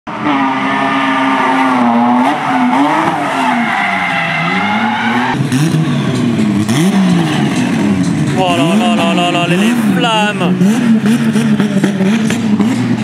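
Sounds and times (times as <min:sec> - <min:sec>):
tyre screech: 0:00.2 - 0:06.4
car engine revving hard: 0:00.2 - 0:13.0.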